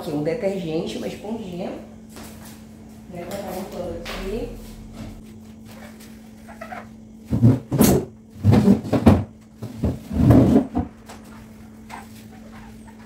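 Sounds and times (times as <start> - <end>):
chairs scraping on tiled floor: 4.4 - 13.0.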